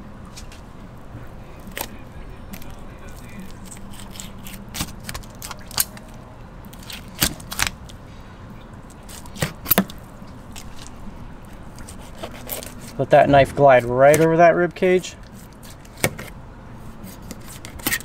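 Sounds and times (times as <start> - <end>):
sharp bone cracks: 1.6 - 8.0
knife cutting through fish bones: 2.6 - 6.0, 11.8 - 13.0, 17.0 - 18.0.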